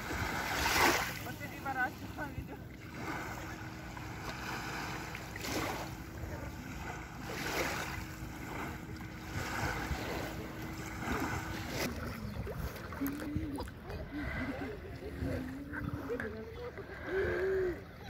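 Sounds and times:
small waves lapping on shore: 0.0 - 18.0.

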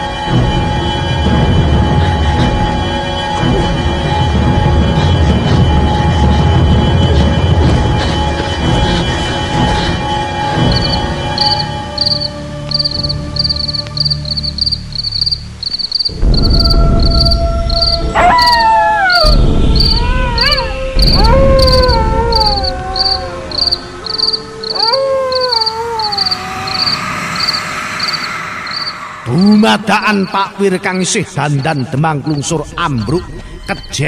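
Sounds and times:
eerie howls: 9.5 - 30.4
crickets chirping: 9.6 - 34.0
deep rumble: 12.8 - 24.2.

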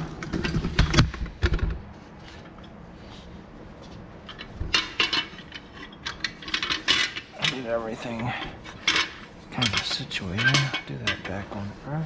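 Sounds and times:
metal clamps clinking and knocking: 4.3 - 11.6.

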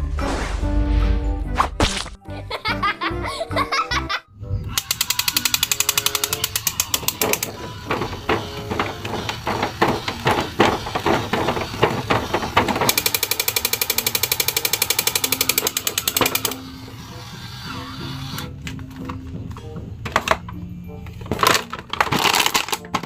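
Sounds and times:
toy electronic machine-gun rattle: 4.7 - 18.5, 21.4 - 23.0
irregular clicking: 4.8 - 16.6.

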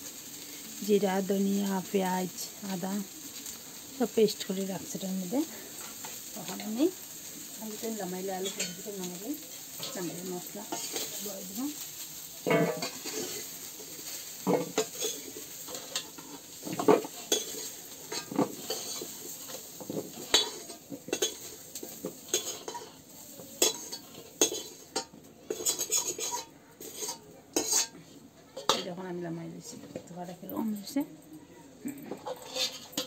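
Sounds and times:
hot oil sizzling: 0.0 - 33.0
steel ladle scraping and knocking: 12.5 - 13.4, 23.6 - 28.0, 32.1 - 33.0.

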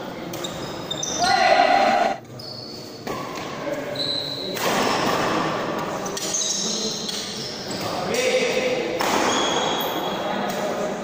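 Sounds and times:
players' voices: 0.2 - 2.4
shoes squeaking on court: 0.3 - 3.3.

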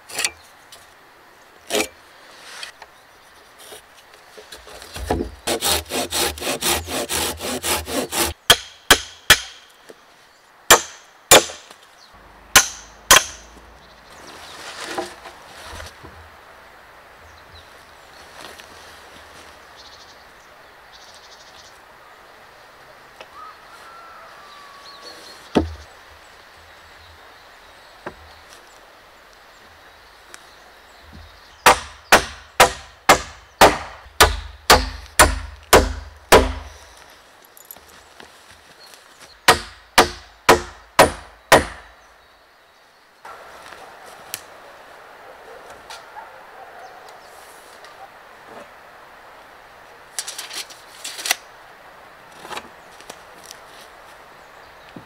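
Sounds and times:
hammer nailing into wood: 8.5 - 9.6, 12.6 - 13.5, 31.7 - 36.7, 39.5 - 41.9.

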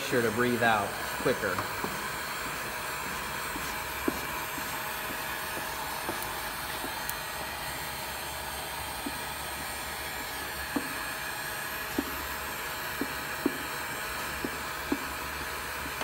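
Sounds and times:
heat gun blowing hot air: 0.0 - 16.0.

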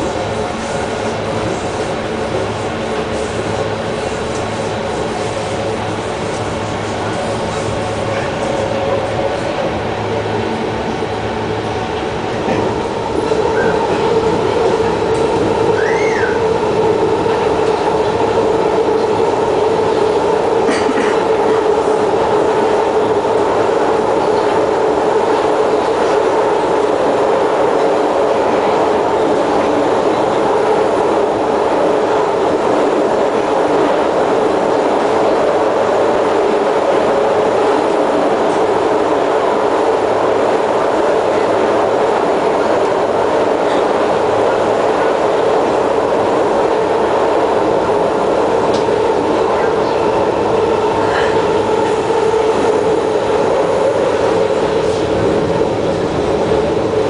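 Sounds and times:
train motors and wheels droning: 0.0 - 57.0
brief squeal: 15.7 - 16.5.

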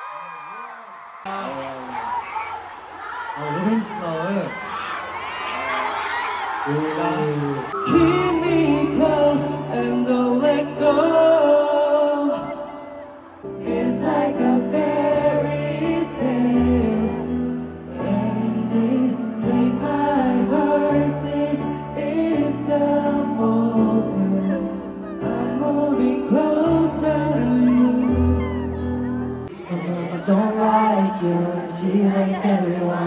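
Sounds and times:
man singing slow song: 7.8 - 12.7, 13.8 - 28.6, 29.5 - 33.0.

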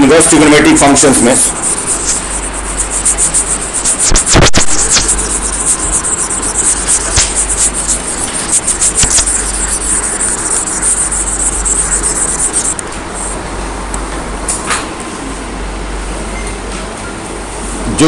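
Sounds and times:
steady hiss: 0.0 - 13.4
scratchy crackles: 0.3 - 13.4
low hum: 1.0 - 14.5.

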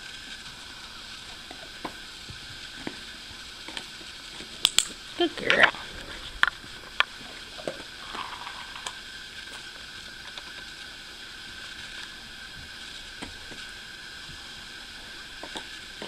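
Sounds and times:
background hiss: 0.0 - 16.0
faint steady whine: 0.0 - 16.0.

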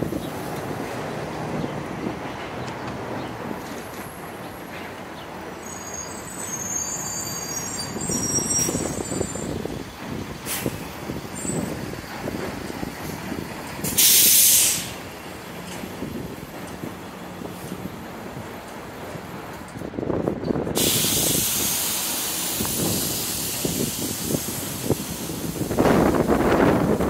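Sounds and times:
street traffic rumbling: 0.0 - 27.0
air brakes hiss: 5.6 - 9.4, 10.4 - 10.9, 13.8 - 15.0, 20.8 - 26.3
high brake squeal: 5.6 - 9.7, 11.4 - 11.8.

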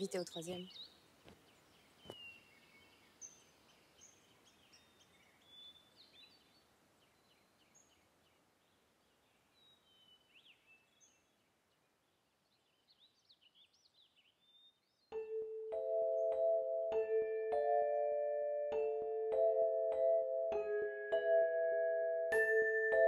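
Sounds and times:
small birds chirping and whistling: 0.0 - 1.0, 1.8 - 8.0
quiet background hiss: 0.0 - 14.3.

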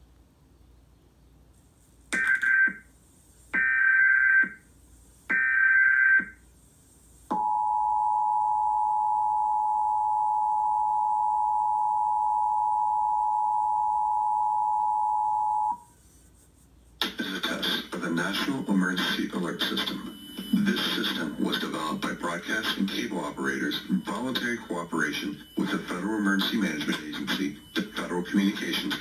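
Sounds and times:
screeching data bursts: 17.3 - 29.0
two-tone alert signal: 18.4 - 29.0.

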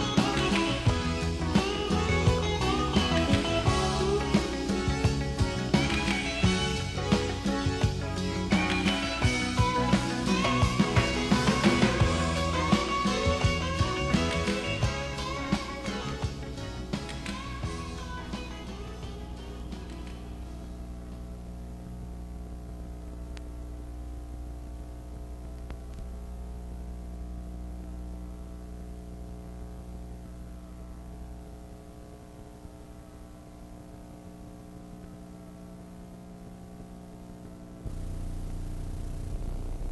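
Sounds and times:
electrical mains hum: 0.0 - 39.9
loud noise: 37.8 - 39.9.

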